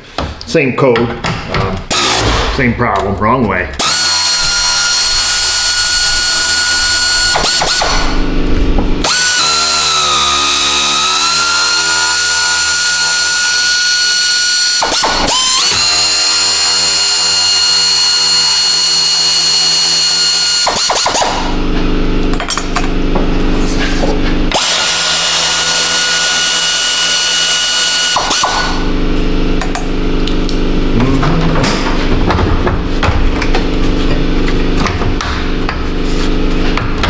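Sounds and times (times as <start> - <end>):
power ratchet motor whining: 1.9 - 2.5, 3.8 - 8.2, 9.0 - 21.5, 23.6 - 28.8.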